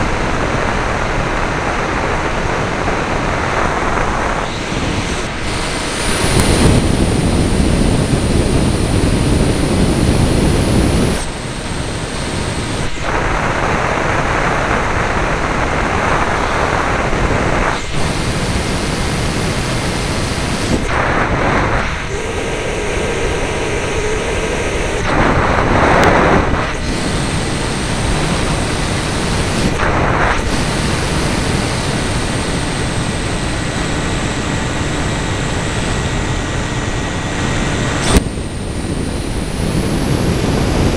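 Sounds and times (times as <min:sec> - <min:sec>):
wind rushing on microphone: 0:00.0 - 0:40.9
model aircraft motor whine: 0:03.0 - 0:14.9.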